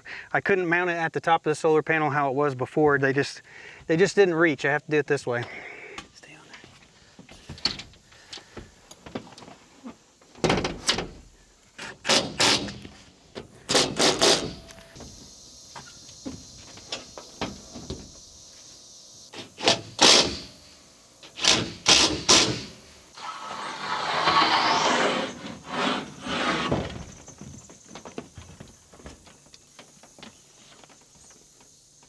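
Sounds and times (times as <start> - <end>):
metal frames clunking and knocking: 7.3 - 9.5, 10.2 - 11.3
scraping on metal: 23.2 - 27.0.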